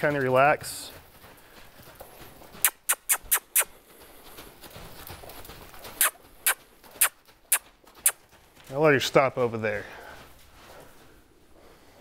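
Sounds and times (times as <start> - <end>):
sharp clicks: 2.6 - 3.7.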